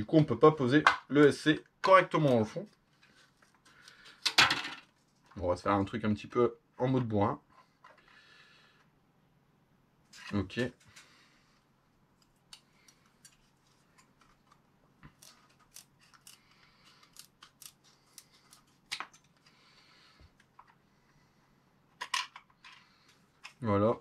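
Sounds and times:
scissors snipping plastic: 15.0s - 19.3s.

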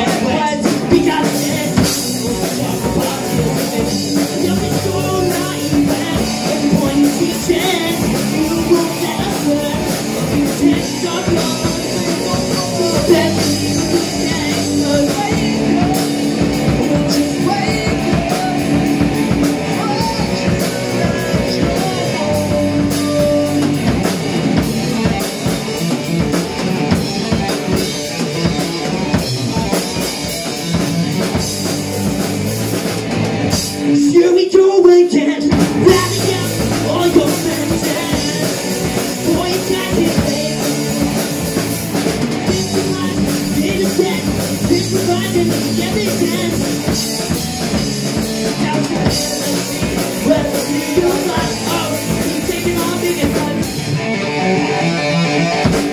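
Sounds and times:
drum kit beat: 0.0s - 55.9s
electric guitars: 0.0s - 55.9s.

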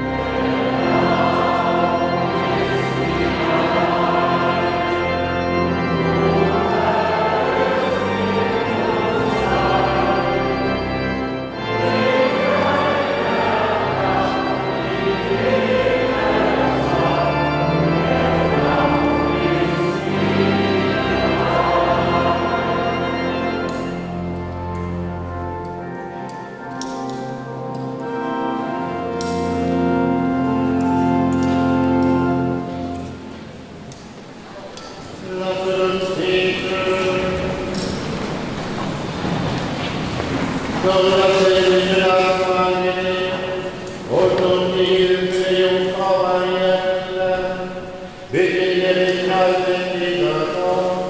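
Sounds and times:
church organ chords: 0.0s - 51.0s
voices singing a hymn: 0.0s - 51.0s.

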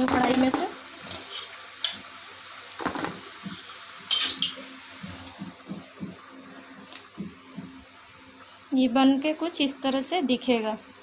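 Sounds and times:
hot oil sizzling: 0.0s - 11.0s
steel spoon clinking: 4.1s - 4.6s.

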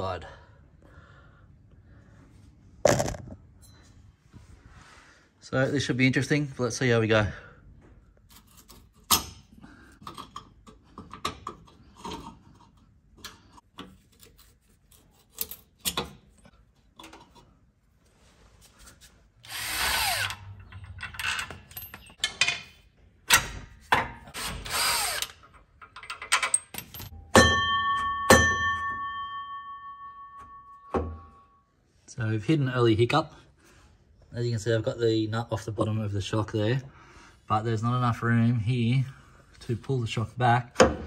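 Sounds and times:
cordless power tool running: 19.5s - 20.4s
ringing metal clanks: 26.4s - 31.7s.

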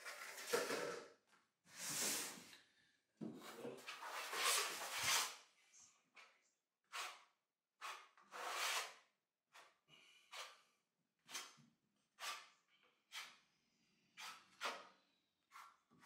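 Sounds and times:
trowel scraping adhesive on floor: 0.0s - 1.0s, 1.7s - 2.5s, 3.8s - 5.4s, 6.8s - 13.5s, 14.1s - 16.0s.

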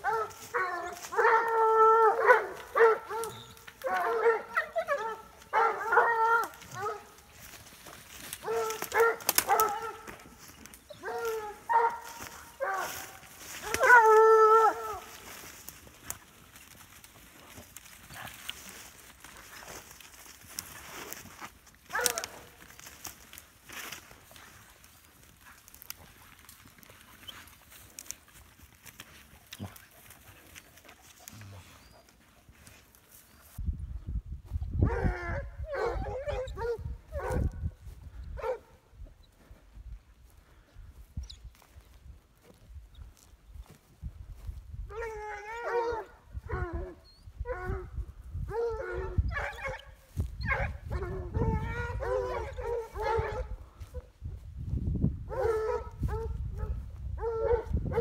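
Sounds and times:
dog baying: 0.0s - 7.6s, 8.4s - 15.6s, 44.9s - 54.1s
hounds baying and yelping: 0.0s - 33.6s, 34.6s - 39.6s, 40.3s - 54.2s, 55.2s - 58.0s
rustling and twig snaps: 2.5s - 4.2s, 6.3s - 33.6s
wind rumble on microphone: 33.6s - 45.1s, 46.1s - 58.0s.

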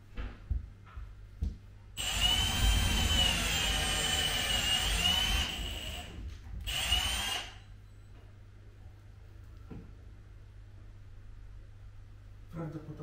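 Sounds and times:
cordless drill whining: 2.0s - 7.6s.

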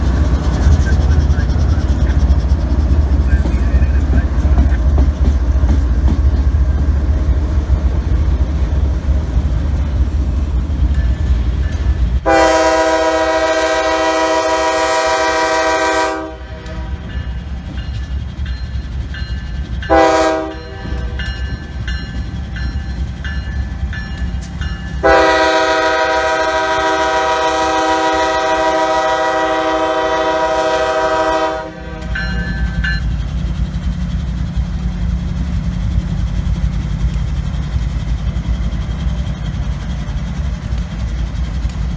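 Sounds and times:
locomotive engines rumbling: 0.0s - 41.9s
passing train rumble: 0.0s - 41.9s
locomotive air horn: 12.2s - 17.1s, 19.9s - 21.2s, 25.0s - 32.4s.

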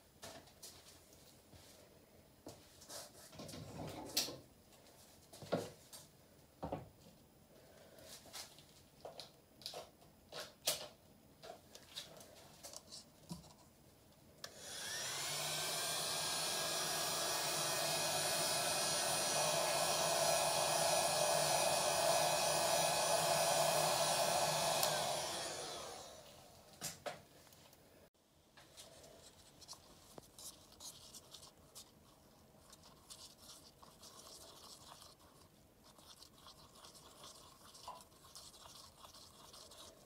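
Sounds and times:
heat gun fan whining: 14.4s - 26.8s.

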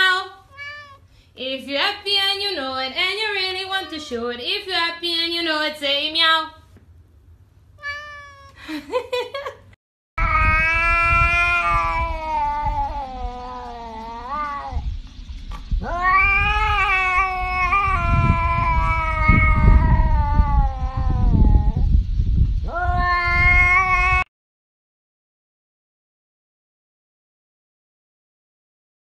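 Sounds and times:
cat yowling: 0.4s - 1.0s, 7.8s - 8.6s, 10.2s - 14.8s, 15.8s - 21.9s, 22.7s - 24.3s.

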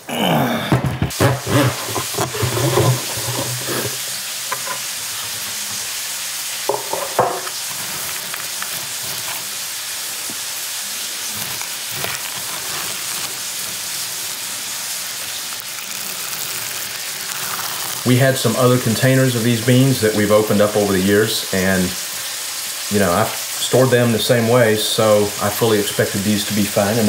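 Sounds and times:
dry beans rustling and rattling: 1.2s - 6.0s, 6.7s - 19.4s.

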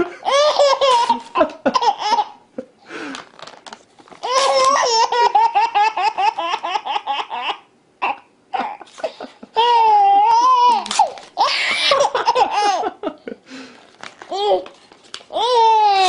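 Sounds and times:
baby laughing: 0.0s - 2.4s, 4.2s - 13.0s.

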